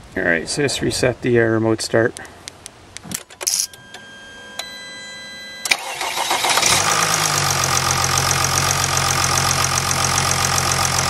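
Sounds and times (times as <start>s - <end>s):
diesel engine starting and idling: 5.6s - 11.0s.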